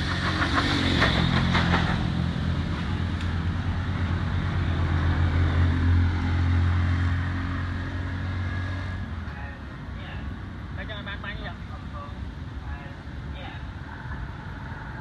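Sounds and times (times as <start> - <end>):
engine humming: 0.0 - 10.9.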